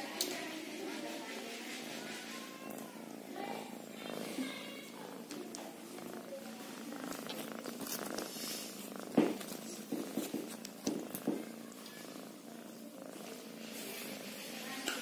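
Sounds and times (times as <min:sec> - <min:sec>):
kitten purring: 0:00.1 - 0:15.0
sharp knocks and rustles: 0:09.1 - 0:11.5.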